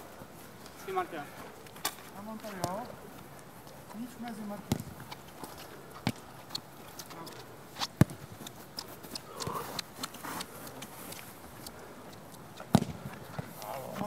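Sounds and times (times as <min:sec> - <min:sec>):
ball impacts: 0:01.8 - 0:03.0, 0:04.6 - 0:05.2, 0:07.8 - 0:08.4, 0:12.5 - 0:14.0.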